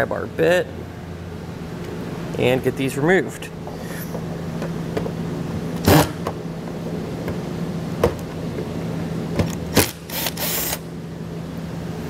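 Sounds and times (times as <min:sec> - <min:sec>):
cordless drill running: 0:10.1 - 0:10.8.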